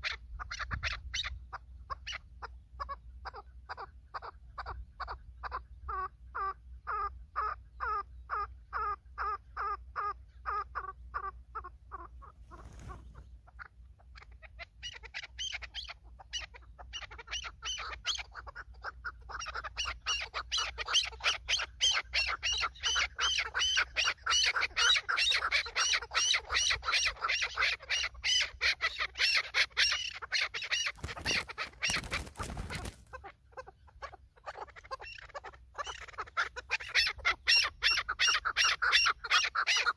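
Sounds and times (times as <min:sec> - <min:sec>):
partridges calling: 0:00.0 - 0:39.9
rough rustling: 0:12.4 - 0:13.3.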